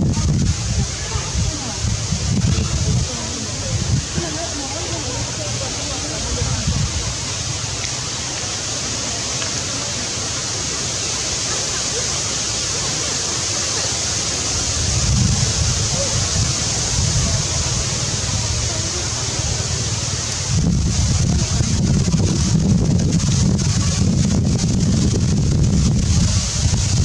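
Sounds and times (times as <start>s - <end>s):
wind buffeting microphone: 0.0s - 8.4s, 14.2s - 27.0s
steady outdoor hiss: 0.0s - 27.0s.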